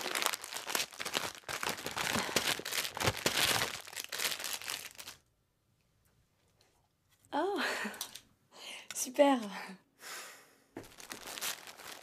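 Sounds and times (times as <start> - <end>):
wrapping paper crinkling: 0.0 - 5.2, 10.8 - 12.0.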